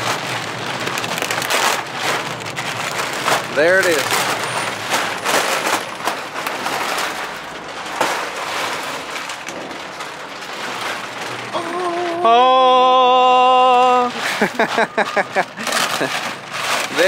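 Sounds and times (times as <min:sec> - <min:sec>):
plastic wrap crinkling and tearing: 0:00.0 - 0:17.0
person saying ohhh: 0:11.6 - 0:14.2.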